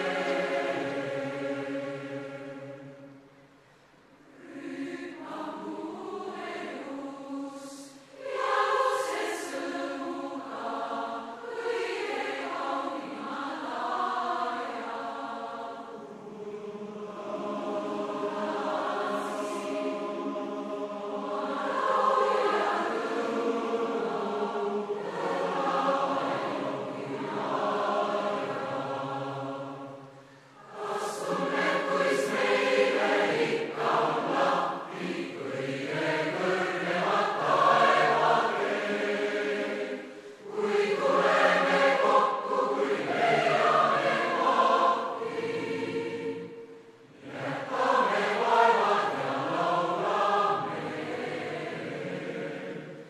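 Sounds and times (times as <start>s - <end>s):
mixed choir singing: 0.0s - 3.3s, 4.3s - 53.0s.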